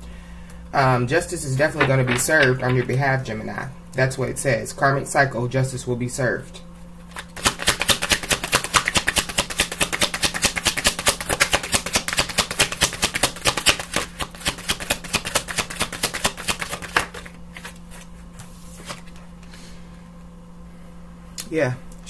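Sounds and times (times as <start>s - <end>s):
cards being shuffled: 7.0s - 19.2s.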